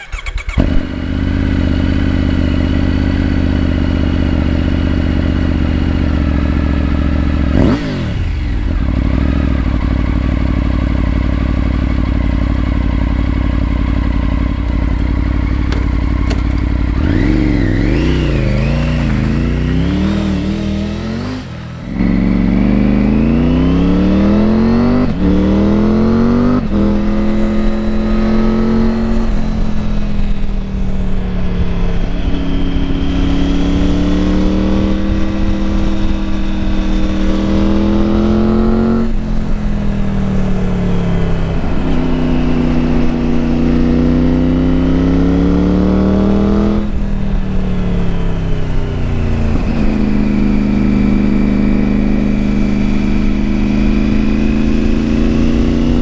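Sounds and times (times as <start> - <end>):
motorcycle pulling away shifting up: 0.0 - 56.0
motorcycle throttle blips: 7.6 - 23.5
motorcycle engine idling: 8.2 - 23.1.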